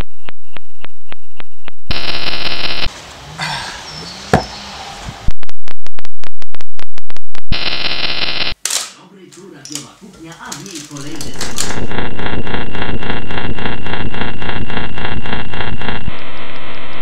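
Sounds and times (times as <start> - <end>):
loud electronic buzzing tone: 0.0 - 2.9, 5.3 - 8.6, 11.9 - 17.0
loud electronic pulsing: 1.9 - 2.9, 11.7 - 17.0
sharp click: 8.6 - 9.0.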